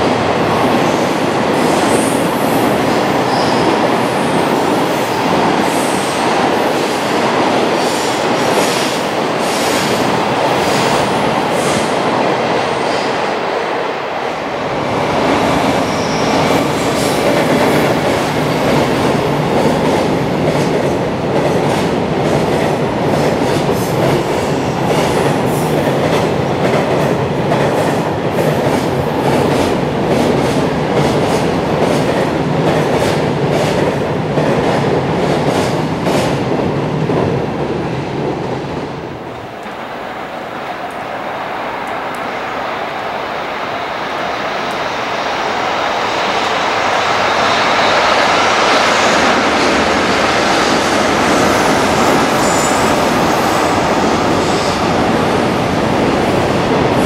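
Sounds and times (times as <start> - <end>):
freight train wheels rumbling: 0.0 - 57.0
wheels clickety-clack on rail joints: 15.6 - 36.4.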